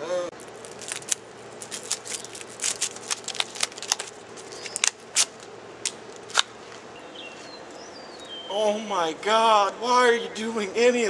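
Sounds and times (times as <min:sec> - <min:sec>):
packet crinkling and rustling: 0:00.4 - 0:07.8.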